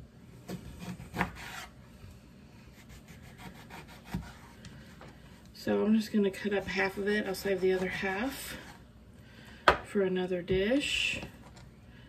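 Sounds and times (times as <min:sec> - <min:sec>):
knife sawing through lemon: 0:00.8 - 0:01.8, 0:02.7 - 0:04.6.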